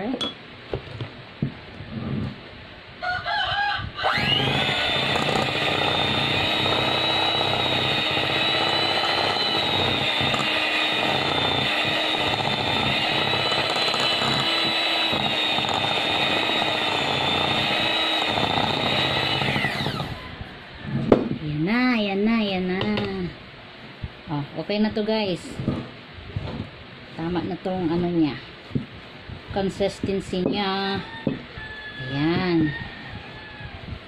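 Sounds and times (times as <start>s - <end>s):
electric mixer running: 4.0s - 20.2s.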